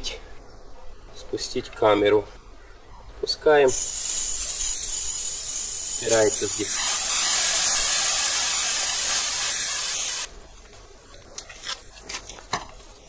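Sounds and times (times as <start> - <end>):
air hissing from tyre valve: 3.7 - 10.3.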